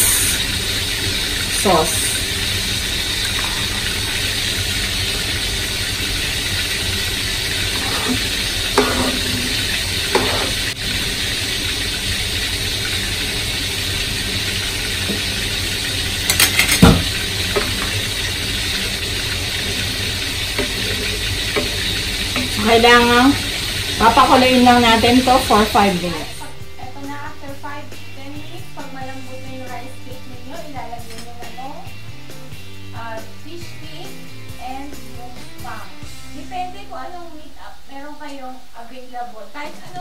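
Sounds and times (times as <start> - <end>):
pan boiling: 0.0 - 31.9
oil sizzling in a pan: 0.0 - 40.0
utensils clinking against a pan: 7.7 - 10.8, 16.2 - 18.0
knocks on a pan: 16.3 - 17.9.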